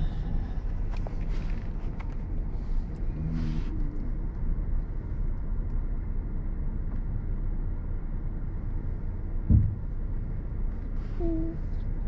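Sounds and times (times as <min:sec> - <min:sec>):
car engine idling: 0:00.0 - 0:12.0
dull thump: 0:09.5 - 0:09.9.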